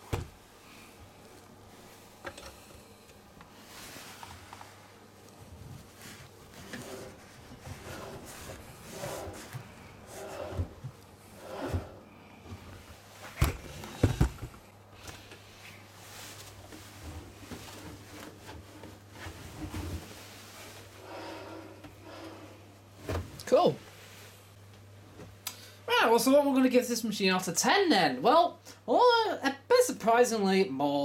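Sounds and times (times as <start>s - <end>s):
cloth rustling and dragging: 3.5s - 13.4s, 15.2s - 23.2s.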